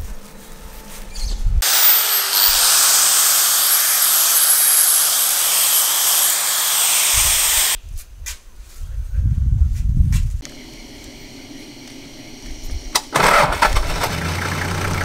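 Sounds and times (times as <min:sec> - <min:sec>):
angle grinder grinding metal: 0:01.6 - 0:07.8.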